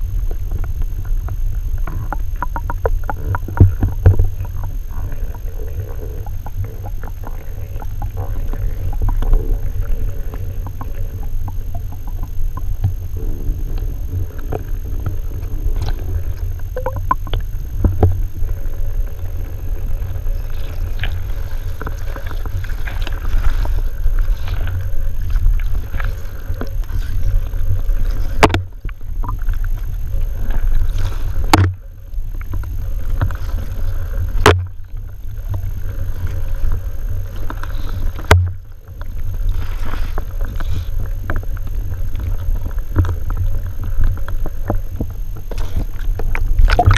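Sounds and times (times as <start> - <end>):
muffled underwater rumble: 0.0 - 46.9.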